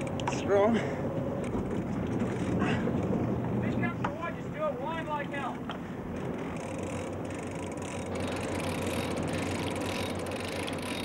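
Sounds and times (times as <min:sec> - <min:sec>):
boat engine running: 0:00.0 - 0:11.0
fishing reel ratchet clicking: 0:06.4 - 0:11.0.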